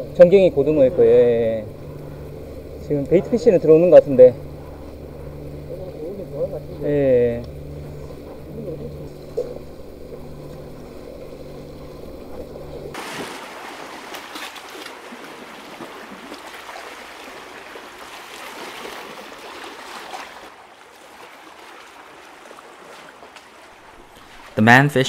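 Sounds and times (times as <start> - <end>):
steady low hum: 0.0 - 25.0
sea water sloshing: 12.2 - 25.0
small water splashes: 12.9 - 25.0.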